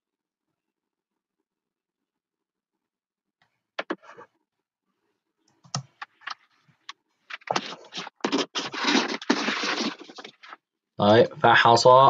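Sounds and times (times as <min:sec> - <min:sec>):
dense noise: 0:07.3 - 0:12.0.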